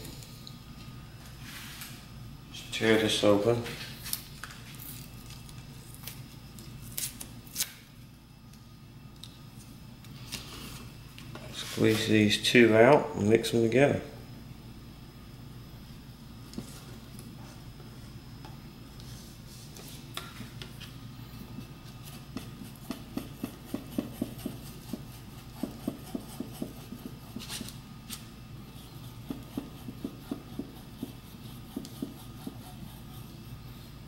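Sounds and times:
stick stirring epoxy on cardboard: 21.6 - 33.7.

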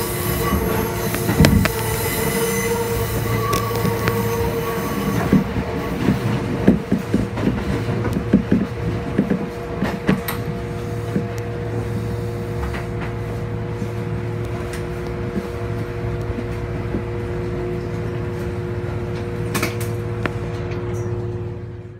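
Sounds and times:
train running hum and whine: 0.0 - 21.9
train wheels clattering over joints: 5.1 - 11.3.

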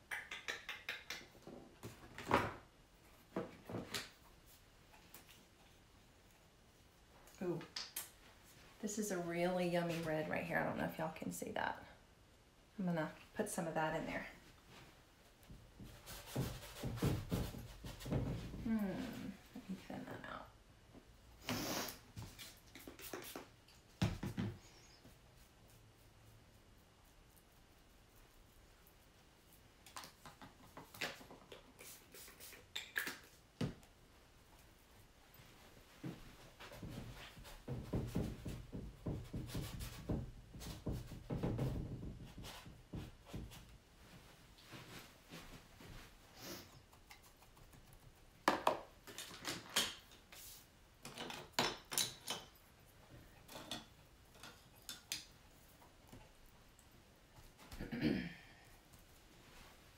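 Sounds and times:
painting supplies clicking and scraping: 46.8 - 57.6.

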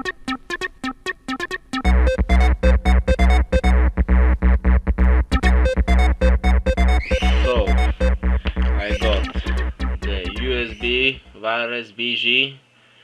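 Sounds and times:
repeating synth notes: 0.0 - 11.4
deep bass and beat: 1.8 - 11.4.

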